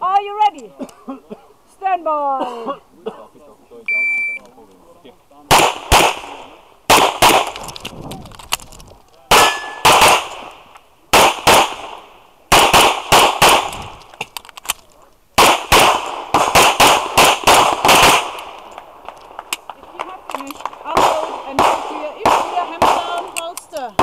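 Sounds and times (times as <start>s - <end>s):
pistol shots: 5.5s - 7.8s, 9.3s - 14.0s, 15.4s - 18.7s, 20.4s - 24.0s.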